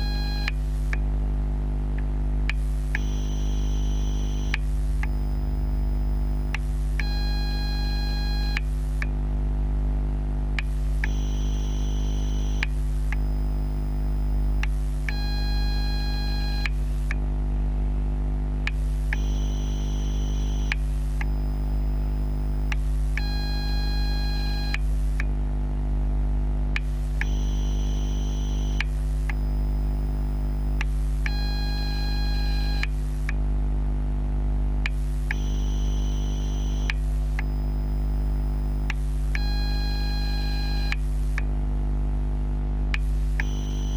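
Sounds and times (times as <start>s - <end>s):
high-pitched electrical whine: 0.0s - 1.0s, 2.5s - 17.2s, 18.4s - 25.2s, 26.8s - 33.3s, 34.9s - 41.0s, 43.0s - 43.9s
low mains hum: 0.0s - 43.9s.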